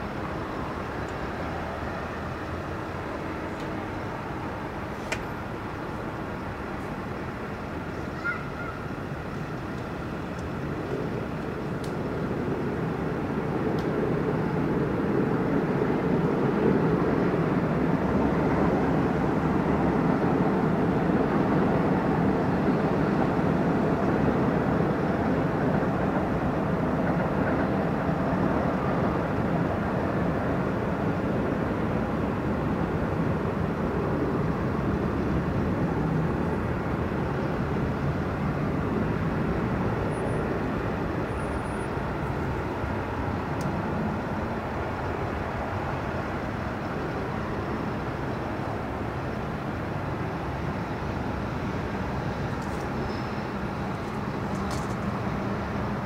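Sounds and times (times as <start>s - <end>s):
low rushing background noise: 0.0s - 56.0s.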